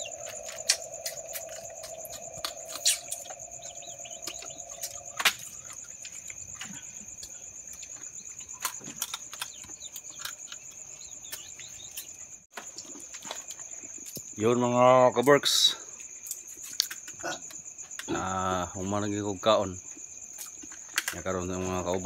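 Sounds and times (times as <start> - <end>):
low steady drone: 0.0 - 5.5
crickets chirping: 0.0 - 22.0
crab shells cracking: 8.4 - 10.7.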